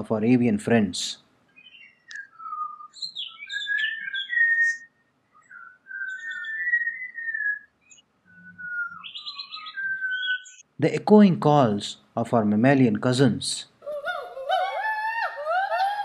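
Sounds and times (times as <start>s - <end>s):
birds singing whistled phrases: 1.5s - 10.7s.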